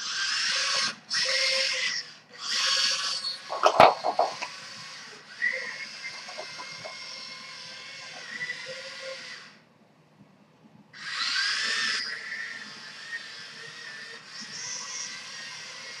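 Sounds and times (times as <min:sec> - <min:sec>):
robot motors and tracks whining: 0:11.0 - 0:16.0.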